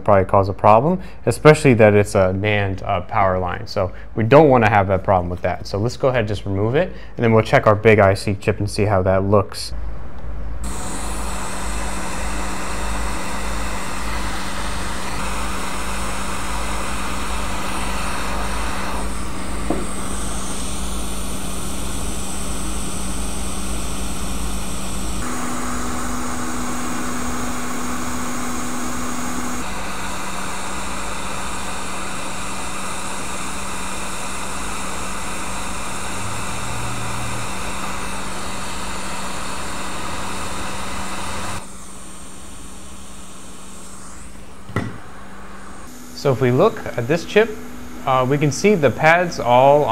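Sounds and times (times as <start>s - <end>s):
steady hum: 9.7s - 49.9s
hot air blowing: 10.6s - 49.9s.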